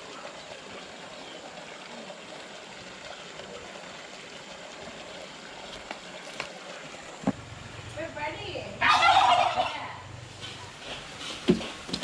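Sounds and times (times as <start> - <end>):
running water: 0.0 - 8.8.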